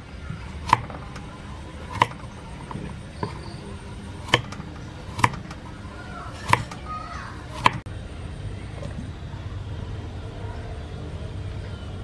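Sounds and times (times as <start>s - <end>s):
knife striking wooden cutting board: 0.4s - 5.6s, 6.3s - 6.8s, 7.5s - 7.9s.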